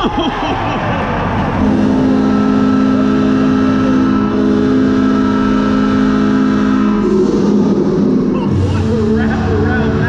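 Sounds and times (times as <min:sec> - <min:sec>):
crowd noise: 0:00.0 - 0:10.0
goal horn blast: 0:01.4 - 0:10.0.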